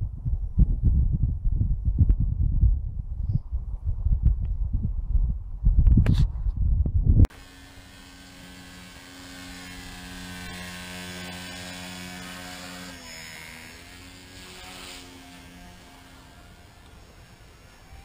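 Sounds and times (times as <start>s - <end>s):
rc helicopter motor whine: 7.3s - 18.0s.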